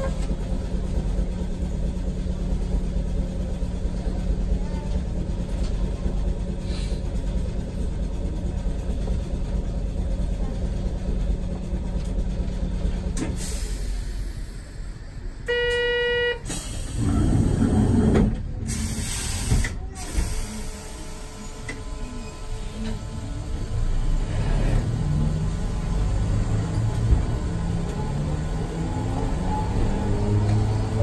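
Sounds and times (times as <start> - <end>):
streetcar humming: 0.0 - 31.0
flat horn tone: 15.5 - 16.4.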